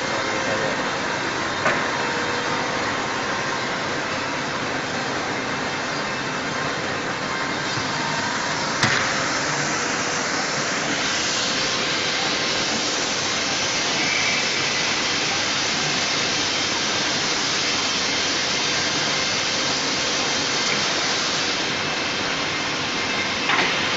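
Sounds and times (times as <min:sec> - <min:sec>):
drilling machine spindle hiss: 0:07.6 - 0:23.9.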